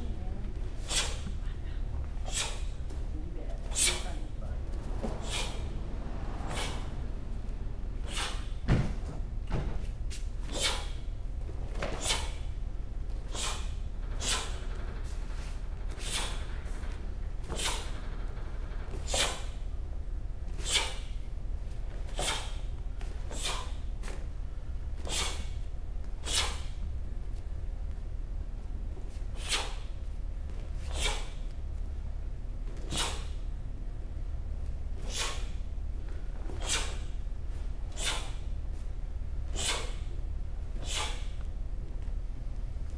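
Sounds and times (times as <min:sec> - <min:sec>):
martial arts strikes snapping: 0:08.0 - 0:11.1, 0:11.7 - 0:12.5, 0:15.9 - 0:16.4, 0:18.9 - 0:19.6, 0:20.5 - 0:21.2, 0:22.1 - 0:24.3, 0:25.0 - 0:25.6, 0:26.2 - 0:26.8, 0:29.4 - 0:29.9, 0:30.9 - 0:31.6, 0:32.7 - 0:33.4, 0:36.5 - 0:37.1, 0:37.9 - 0:38.5, 0:39.6 - 0:40.1, 0:40.8 - 0:41.5.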